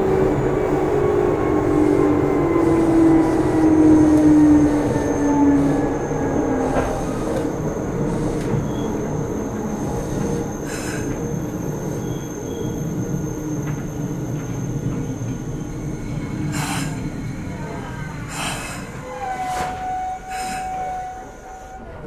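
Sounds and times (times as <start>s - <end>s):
train running rumble: 0.0s - 22.0s
high brake squeal: 6.9s - 22.0s.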